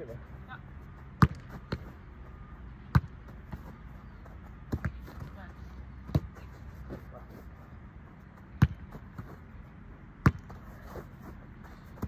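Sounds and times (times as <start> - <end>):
football thuds: 1.1 - 2.0, 2.8 - 7.1, 8.4 - 9.4, 10.2 - 12.0.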